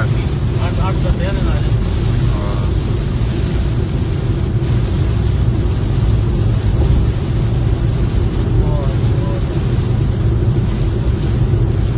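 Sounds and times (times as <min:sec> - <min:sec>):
heavy rain on car roof: 0:00.0 - 0:11.9
tyre noise on flooded road: 0:00.0 - 0:11.9.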